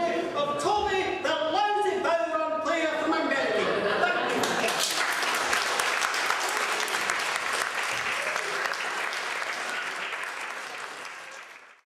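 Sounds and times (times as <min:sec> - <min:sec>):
audience applauding: 0:04.3 - 0:11.9.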